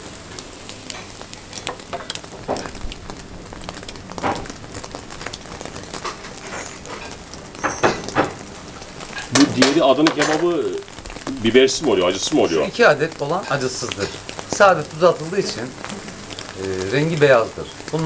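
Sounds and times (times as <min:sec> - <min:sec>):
crackles and pops: 0:00.0 - 0:18.0
meat sizzling over charcoal: 0:00.0 - 0:18.0
loud knocks: 0:01.7 - 0:03.0, 0:04.0 - 0:05.1, 0:05.9 - 0:08.6.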